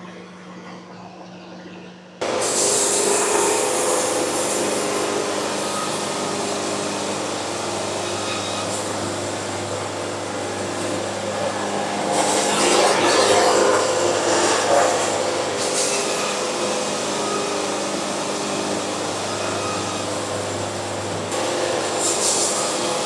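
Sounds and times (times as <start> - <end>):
machine rushing noise: 2.0 - 23.0.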